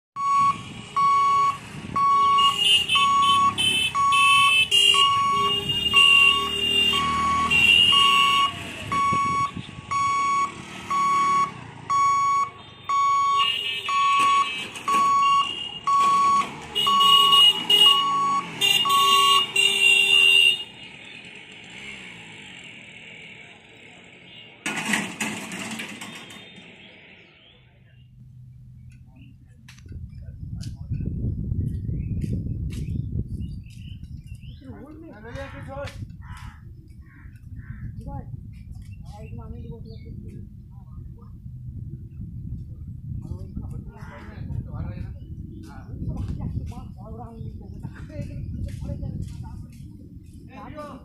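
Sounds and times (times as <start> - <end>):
steady electronic beep: 0.2 - 19.5.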